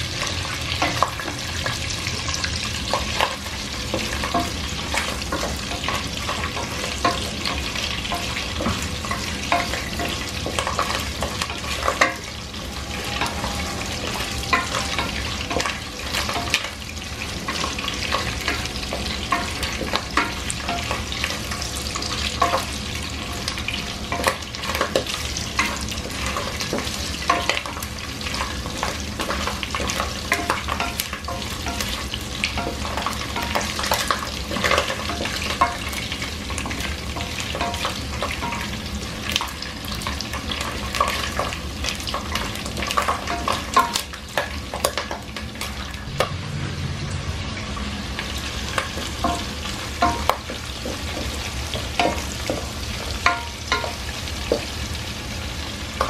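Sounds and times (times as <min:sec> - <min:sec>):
meat sizzling in hot oil: 0:00.0 - 0:56.0.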